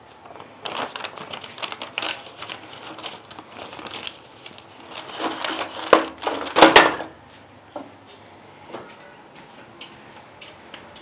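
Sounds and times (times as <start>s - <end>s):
paper rustling and crinkling: 0.0s - 7.0s.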